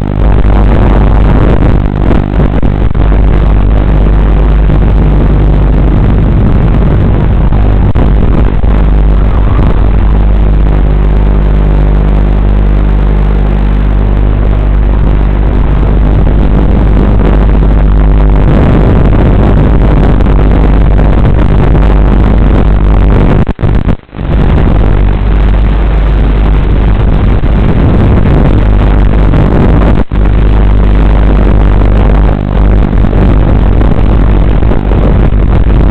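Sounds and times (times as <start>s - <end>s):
drone propellers whirring: 0.0s - 20.0s.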